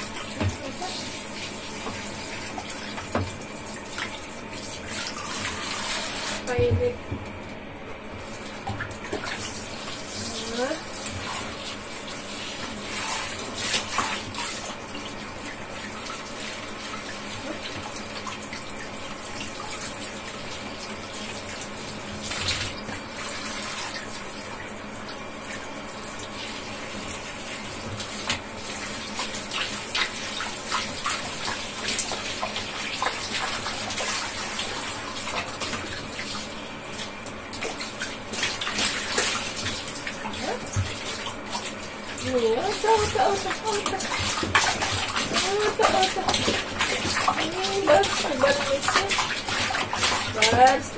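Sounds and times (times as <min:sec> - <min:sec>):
shower head spraying water: 0:00.0 - 0:06.9, 0:26.0 - 0:50.9
water splashing and sloshing: 0:00.0 - 0:50.9.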